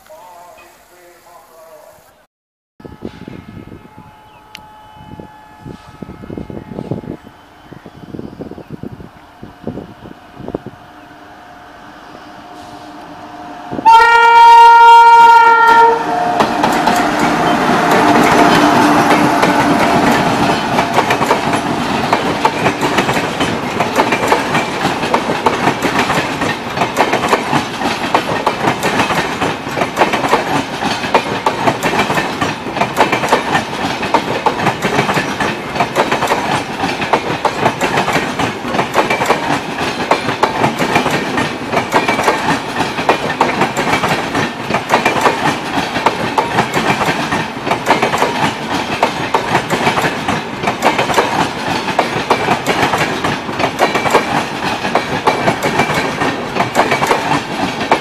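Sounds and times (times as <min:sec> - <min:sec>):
train horn blast: 0:02.8 - 0:21.0
train wheels clattering over rail joints: 0:16.4 - 0:58.0.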